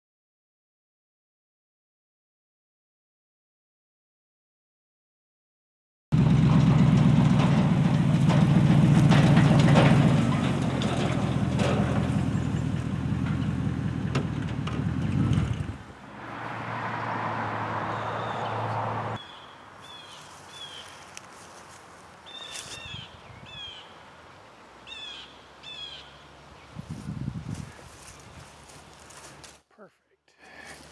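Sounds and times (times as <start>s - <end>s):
pickup truck engine running: 6.2s - 16.2s
trailer clattering: 6.2s - 19.2s
birds chirping: 16.4s - 29.6s.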